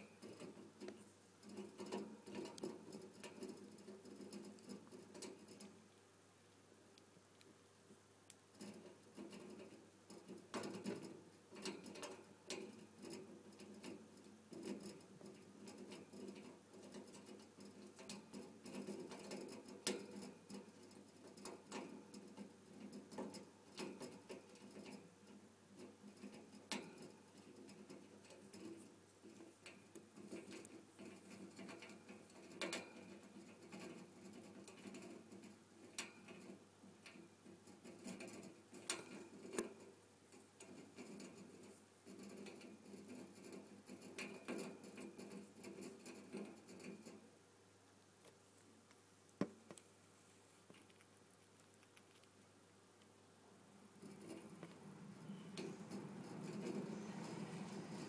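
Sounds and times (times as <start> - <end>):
parrot gnawing with its beak: 50.6 - 52.6.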